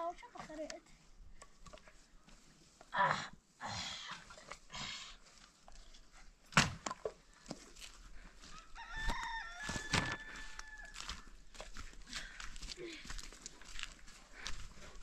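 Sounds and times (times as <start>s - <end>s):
rooster crowing: 8.5s - 11.4s.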